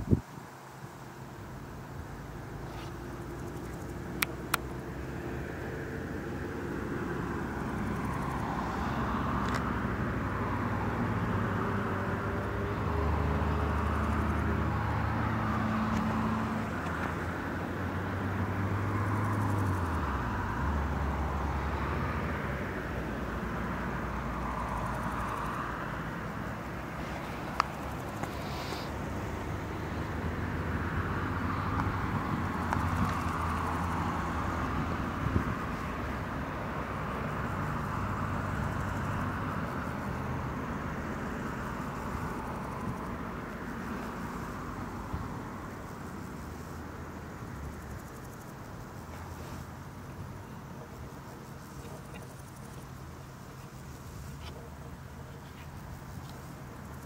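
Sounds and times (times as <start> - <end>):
distant vehicle engine hum: 0.0 - 57.0
steady hiss: 26.0 - 29.9.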